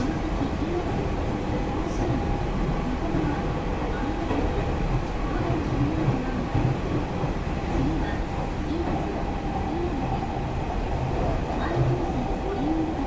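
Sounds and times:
electric train rumbling: 0.0s - 13.0s.

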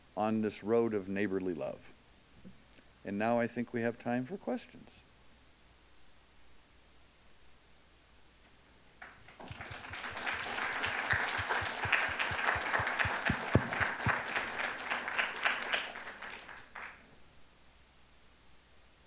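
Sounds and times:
audience applauding: 9.0s - 17.0s.

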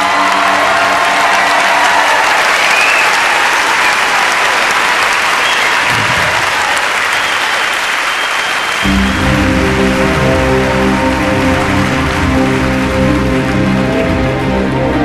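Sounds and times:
large audience applauding: 0.0s - 15.0s
whistling: 2.4s - 4.2s, 5.4s - 6.0s, 7.0s - 9.1s.

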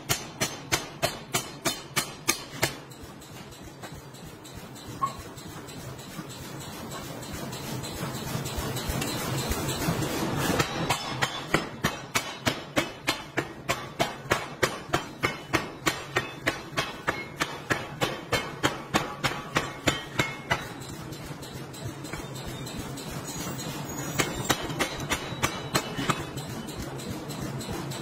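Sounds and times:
pneumatic forging hammer striking: 0.0s - 28.0s.

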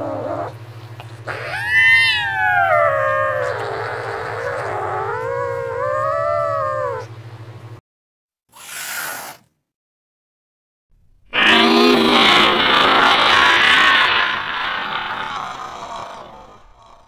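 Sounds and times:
cartoon cat yowling: 1.3s - 7.1s, 11.3s - 16.9s.

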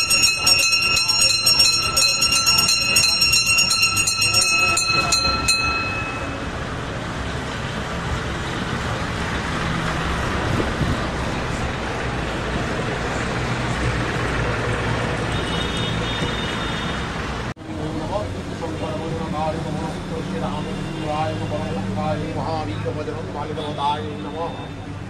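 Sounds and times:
crowd murmuring: 0.0s - 6.5s
faint high ringing: 0.0s - 6.6s.

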